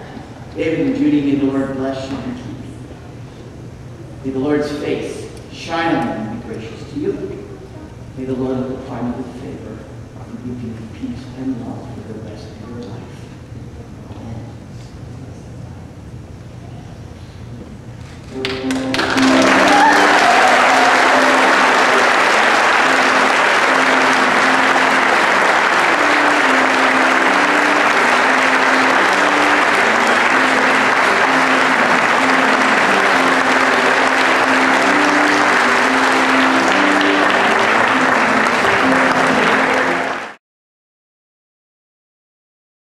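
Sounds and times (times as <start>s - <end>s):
slow instrumental music: 18.3s - 40.4s
crowd applause: 18.4s - 40.4s.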